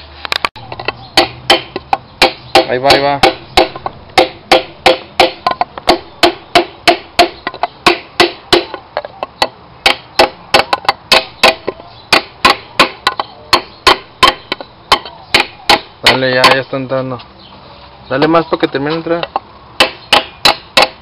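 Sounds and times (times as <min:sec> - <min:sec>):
hammer tapping wooden block: 0:01.2 - 0:16.6.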